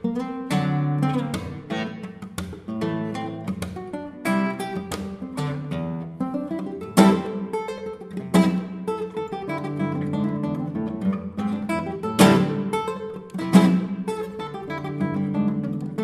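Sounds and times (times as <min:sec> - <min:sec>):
plucked classical guitar melody: 0:00.0 - 0:16.0
loud strummed guitar chords: 0:11.7 - 0:14.3.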